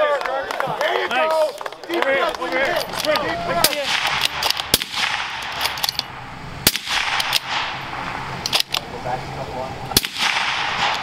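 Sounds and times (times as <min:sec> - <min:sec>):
men's raised voices: 0:00.0 - 0:04.2
gunshots: 0:03.6 - 0:05.9, 0:06.6 - 0:08.7, 0:09.9 - 0:11.0.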